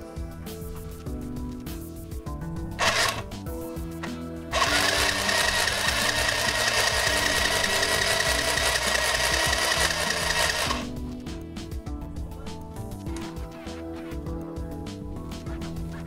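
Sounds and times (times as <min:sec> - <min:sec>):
sewing machine stitching: 0:02.8 - 0:03.3, 0:04.5 - 0:10.9.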